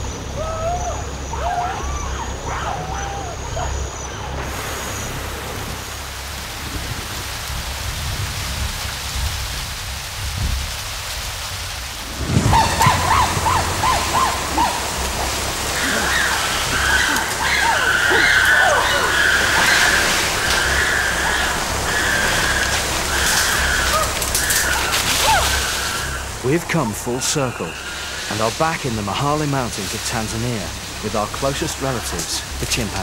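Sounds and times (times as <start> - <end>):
whistled calls: 0.0 - 5.7, 12.1 - 33.0
heavy rain on foliage: 0.0 - 33.0
thunder crack: 11.8 - 25.6.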